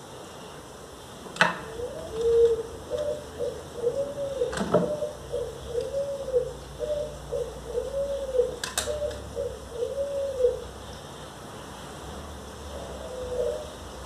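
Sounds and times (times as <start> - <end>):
dove cooing: 1.6 - 10.9, 12.7 - 14.0.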